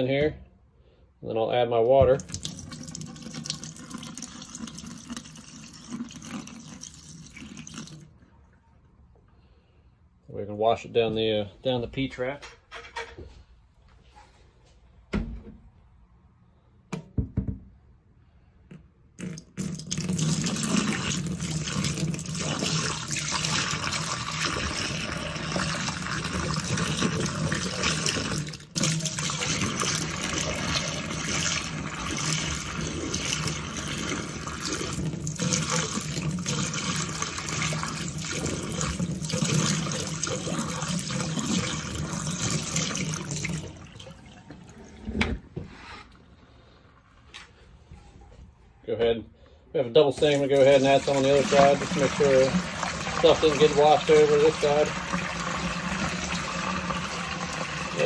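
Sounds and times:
water pouring into steel sink: 2.1 - 8.3, 19.2 - 45.1, 50.2 - 58.0
knocks: 16.9 - 17.7.

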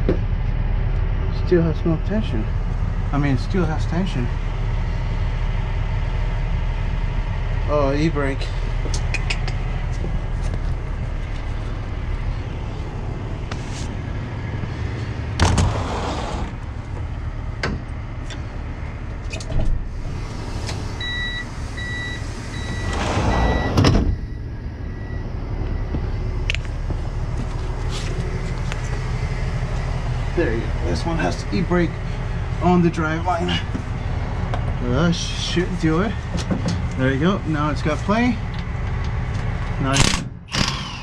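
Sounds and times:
truck engine idling: 0.0 - 40.0
electronic beeps: 21.0 - 26.1.

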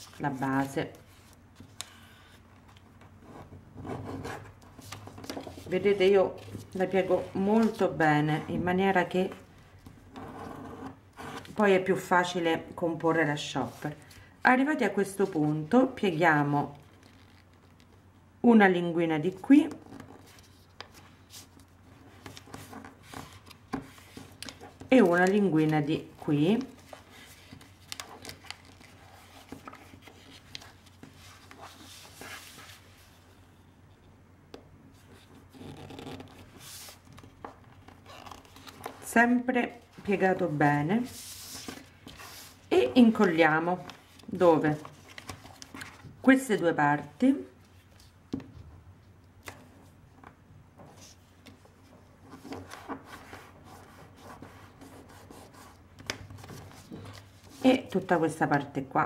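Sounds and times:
paper rustling and crackling: 26.4 - 33.1, 41.0 - 46.2.

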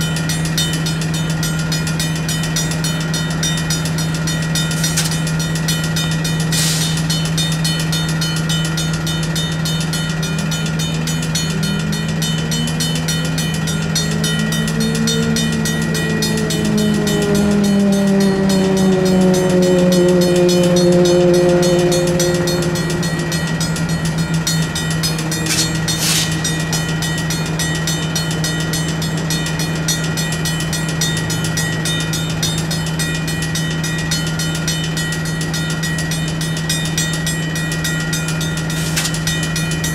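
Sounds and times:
diesel train engine: 0.0 - 39.9
electronic crossing bell: 0.0 - 39.9
mechanical crossing bell: 0.0 - 39.9
metallic clank: 22.4 - 26.9.

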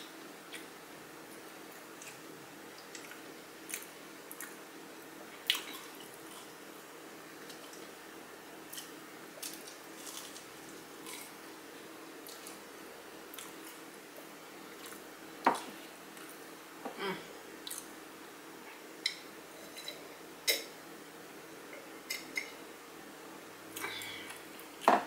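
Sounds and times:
crunchy food chewing: 8.7 - 11.4.

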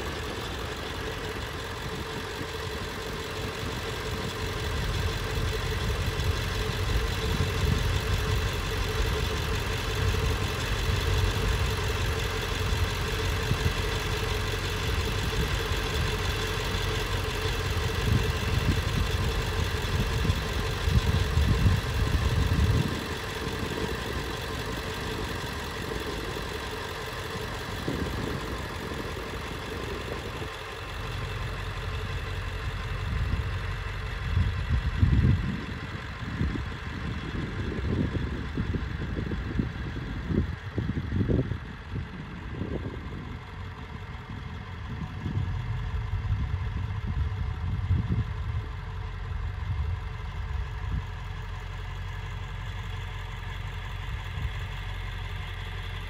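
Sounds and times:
heavy low rumble: 0.0 - 56.0
vehicle engine and road hum: 0.0 - 56.0.

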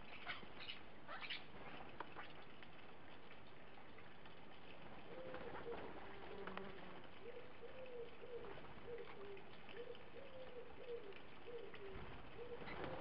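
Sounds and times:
small birds chirping: 0.0 - 13.0
wood pigeon cooing: 5.0 - 13.0.

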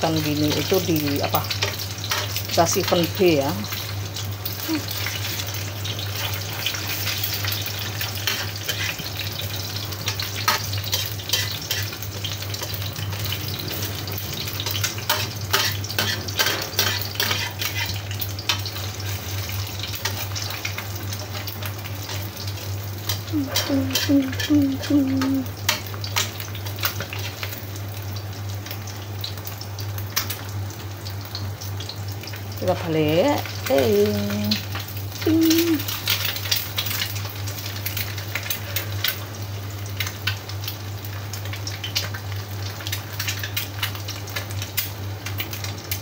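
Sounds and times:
egg sizzling in hot oil: 0.0 - 46.0
spatula scraping and tapping wok: 1.5 - 3.0, 6.2 - 12.8, 14.6 - 18.8.

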